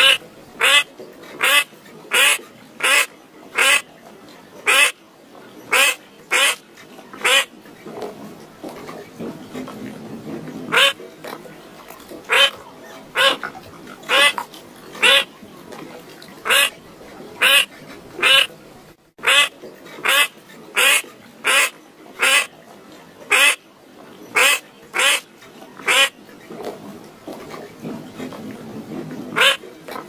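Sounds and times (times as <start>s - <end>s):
duck quacking: 0.0s - 3.9s, 4.7s - 5.0s, 5.7s - 6.6s, 7.2s - 7.5s, 10.7s - 11.0s, 12.3s - 12.6s, 13.2s - 13.5s, 14.1s - 15.3s, 16.4s - 16.8s, 17.4s - 18.5s, 19.2s - 22.5s, 23.3s - 23.6s, 24.4s - 26.2s, 29.4s - 29.6s.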